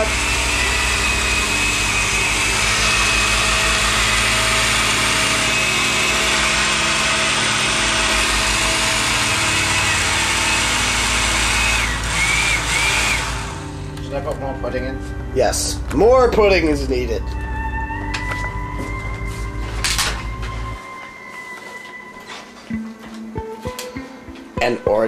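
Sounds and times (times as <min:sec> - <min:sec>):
blender motor running: 0:00.0 - 0:14.0.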